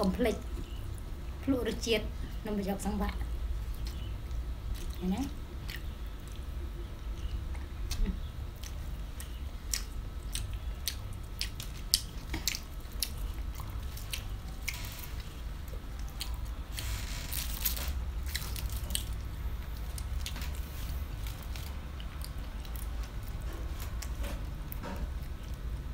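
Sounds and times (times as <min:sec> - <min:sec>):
low steady hum: 0:00.0 - 0:25.9
chewing and lip smacks: 0:05.6 - 0:06.5, 0:07.1 - 0:16.6.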